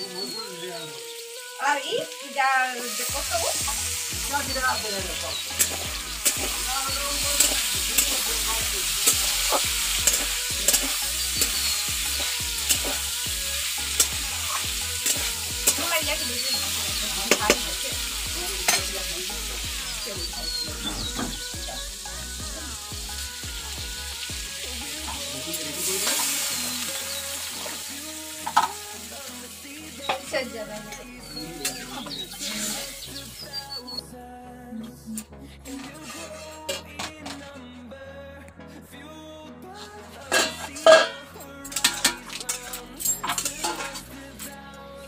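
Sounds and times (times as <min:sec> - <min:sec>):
vegetables sizzling in hot oil: 0:00.0 - 0:33.8, 0:41.7 - 0:44.3
metal spatula scraping a pan: 0:03.0 - 0:17.6, 0:25.1 - 0:27.9, 0:35.7 - 0:37.5, 0:40.3 - 0:44.1.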